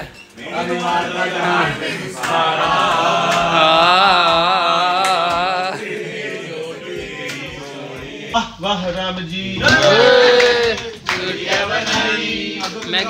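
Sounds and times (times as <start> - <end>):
person singing with vibrato: 3.4 - 6.2.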